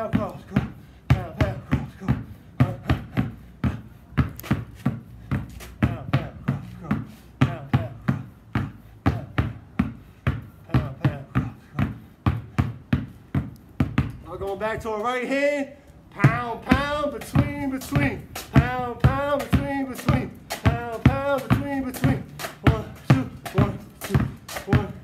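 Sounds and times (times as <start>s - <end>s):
basketballs bouncing on concrete: 0.0s - 15.3s, 16.0s - 25.0s.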